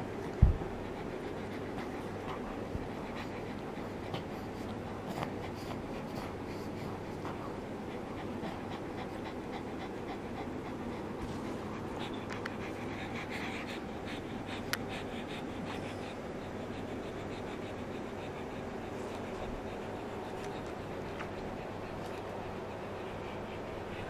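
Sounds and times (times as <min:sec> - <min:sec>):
dog panting: 0:00.0 - 0:24.0
faint clicks and rustles: 0:18.2 - 0:24.0.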